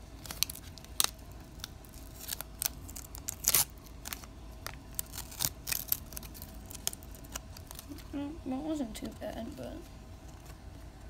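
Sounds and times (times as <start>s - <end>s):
wax paper wrapper crinkling: 0.0s - 8.2s
paper peeling off card: 0.2s - 8.1s.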